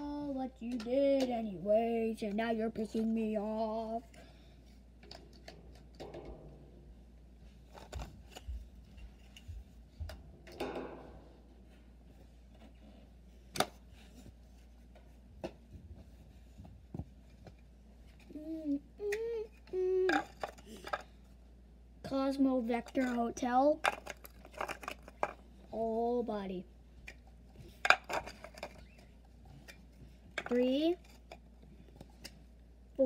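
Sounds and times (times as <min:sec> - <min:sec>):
person humming: 0:18.3 - 0:20.3.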